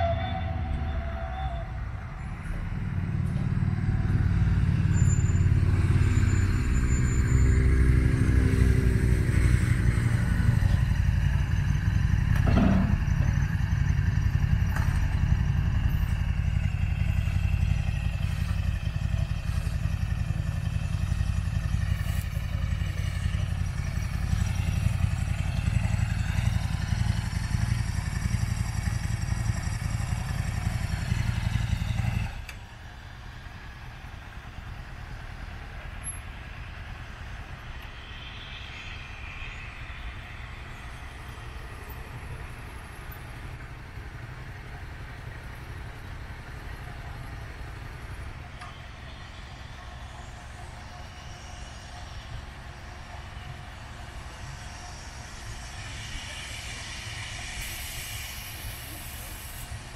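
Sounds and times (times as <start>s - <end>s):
steam locomotive beat: 8.6s - 59.9s.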